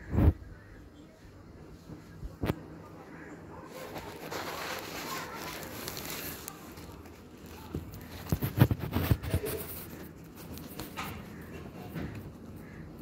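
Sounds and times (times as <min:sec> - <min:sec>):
rustling of sack bedding: 0:03.8 - 0:09.6.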